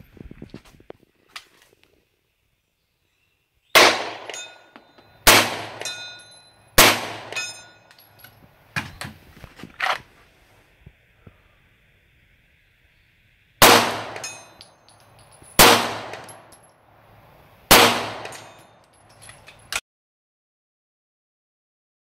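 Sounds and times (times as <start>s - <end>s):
gunshots: 3.8s - 4.5s, 5.2s - 6.0s, 6.8s - 7.4s, 13.6s - 14.3s, 15.6s - 16.4s, 17.7s - 18.6s.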